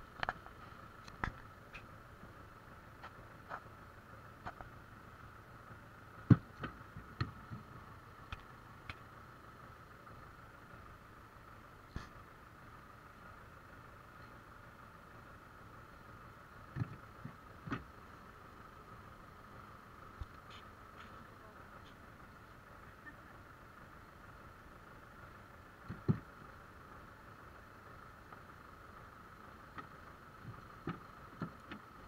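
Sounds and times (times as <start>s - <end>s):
tractor engine idling: 0.0s - 32.0s
logs knocking into wooden trailer: 6.2s - 7.6s, 25.9s - 26.3s.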